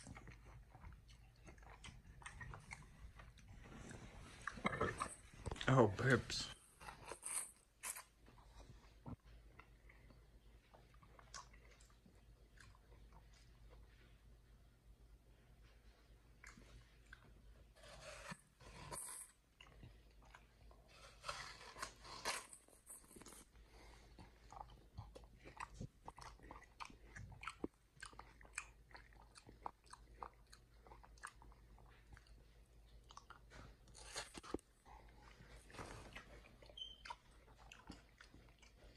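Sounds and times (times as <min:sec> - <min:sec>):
chimpanzee chewing watermelon: 0:00.0 - 0:14.2, 0:15.9 - 0:38.9.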